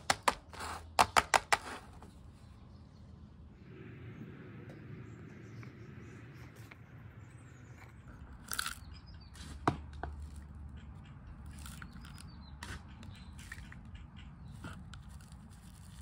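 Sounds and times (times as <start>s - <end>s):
potting mix rustling and scraping: 0.2s - 2.3s, 14.5s - 16.0s.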